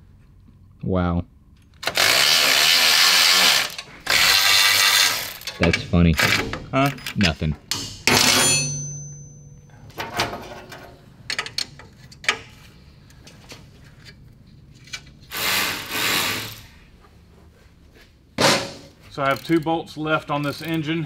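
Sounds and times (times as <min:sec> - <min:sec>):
sharp metallic clank: 0:07.7 - 0:10.9
wrench clicking on bolts: 0:19.2 - 0:19.7.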